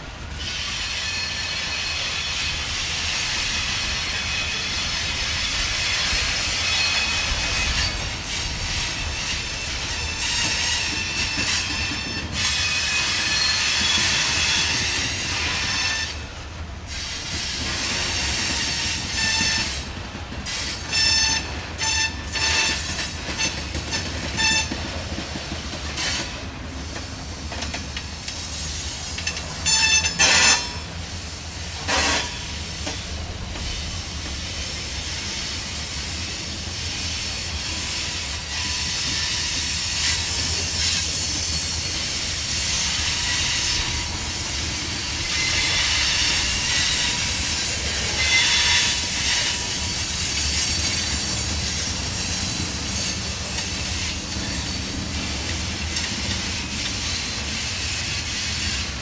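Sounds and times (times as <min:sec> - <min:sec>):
freight train wheels rumbling: 0:00.0 - 0:59.0
wheel squeals: 0:04.0 - 0:16.2.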